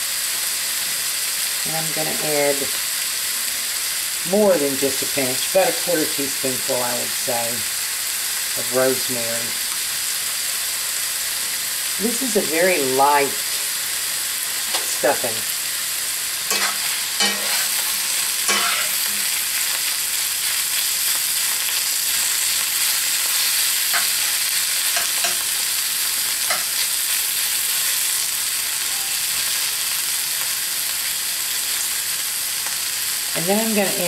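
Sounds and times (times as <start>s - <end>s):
food sizzling in a skillet: 0.0s - 34.0s
spoon scraping a pan: 16.4s - 19.4s, 22.8s - 25.5s, 26.4s - 26.9s.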